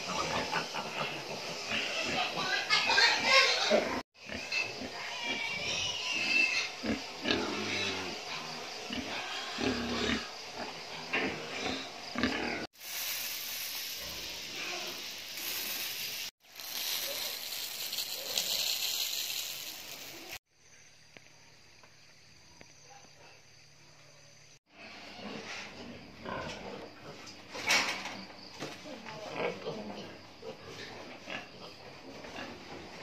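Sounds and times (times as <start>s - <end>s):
pigs grunting: 0.0s - 12.7s, 24.7s - 27.3s, 29.2s - 33.0s
steady hiss: 12.8s - 20.4s.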